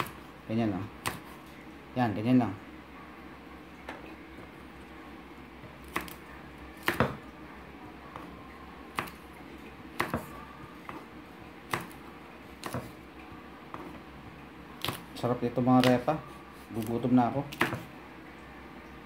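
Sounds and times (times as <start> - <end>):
knife chopping on wooden board: 1.0 - 1.4, 5.8 - 6.2, 6.8 - 7.2, 9.0 - 9.2, 10.0 - 11.1, 11.7 - 12.0, 12.6 - 13.0, 15.8 - 16.1, 16.8 - 17.9.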